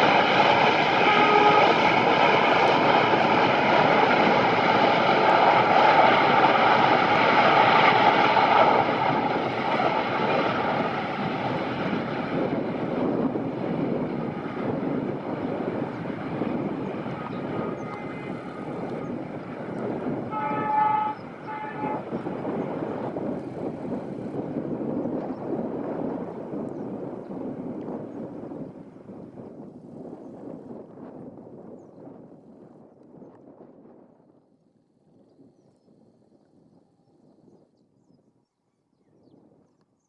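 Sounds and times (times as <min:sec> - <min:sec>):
diesel locomotive engine drone: 0:00.0 - 0:29.2
locomotive horn: 0:00.9 - 0:02.0, 0:17.3 - 0:19.2, 0:20.2 - 0:22.3.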